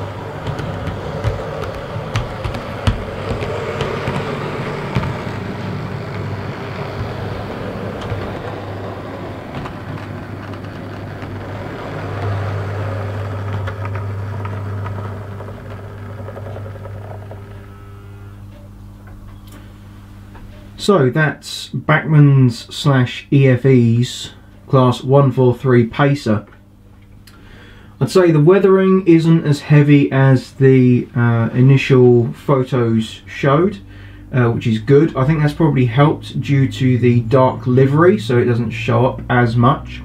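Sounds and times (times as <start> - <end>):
model train motor whirring: 0.0 - 18.6
wheels clicking over rails: 0.0 - 19.7.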